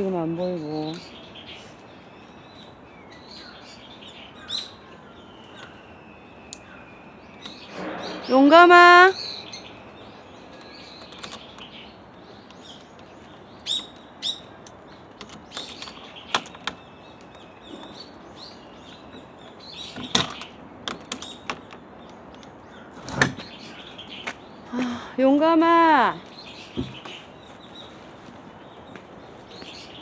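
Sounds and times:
small birds chirping: 0.0 - 30.0
steady outdoor hiss: 0.0 - 30.0
sharp knocks or rustles: 26.7 - 27.2.

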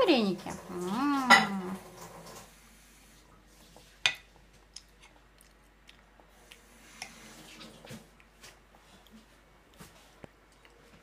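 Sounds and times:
toddler chewing: 4.6 - 11.0.

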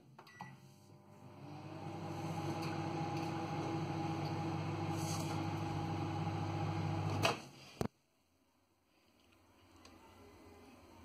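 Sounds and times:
microwave oven humming: 0.4 - 7.3.

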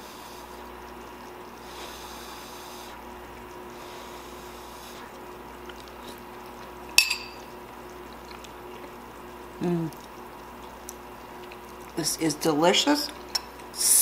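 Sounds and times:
faint steady hum: 0.0 - 14.0
metal spoon clinking on bowl: 7.0 - 7.4.

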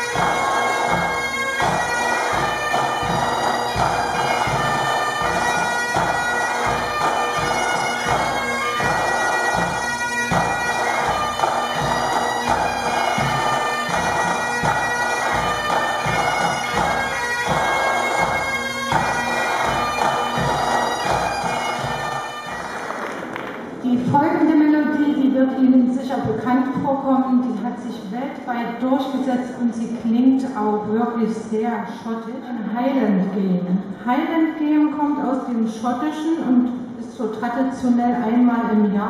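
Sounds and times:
bagpipes playing: 0.0 - 23.4
bass drum beating: 0.0 - 23.7
snare drums: 0.0 - 23.8.

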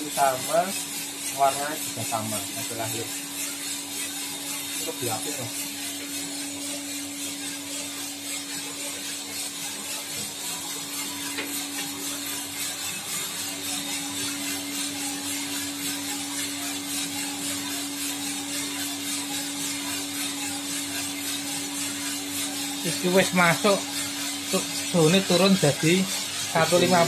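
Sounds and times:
beans turning in drum: 0.0 - 27.0
motor hum: 0.0 - 27.0.

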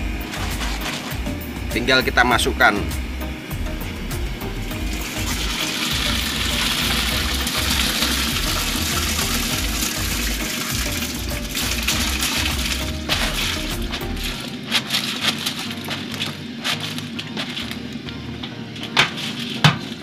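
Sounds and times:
grain pouring into water: 4.8 - 17.6.

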